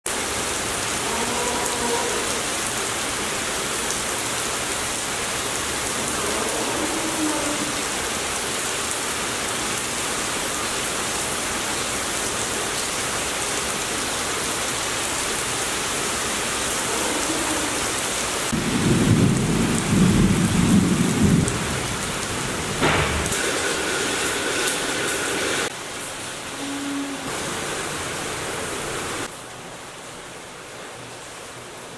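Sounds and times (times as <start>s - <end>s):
rain on paving: 0.1s - 31.9s
sharp knock: 22.8s - 23.4s.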